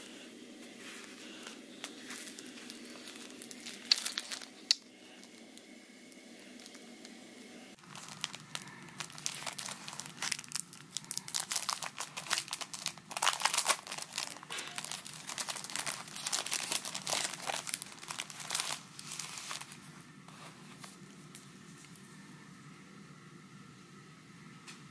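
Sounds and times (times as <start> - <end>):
plastic bag crinkling: 0.8 - 5.7, 7.8 - 22.1.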